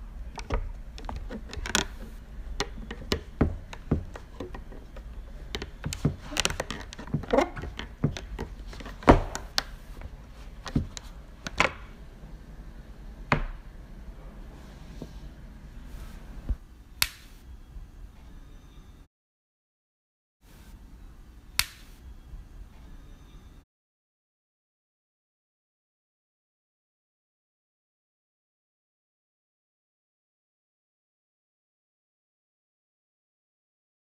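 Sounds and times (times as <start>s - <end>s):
plastic stand clicking: 0.4s - 9.8s
boots stepping on hard floor: 5.7s - 9.6s.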